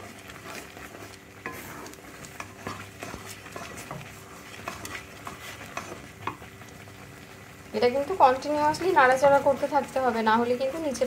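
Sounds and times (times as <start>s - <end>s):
spatula scraping a pan: 0.0s - 6.5s.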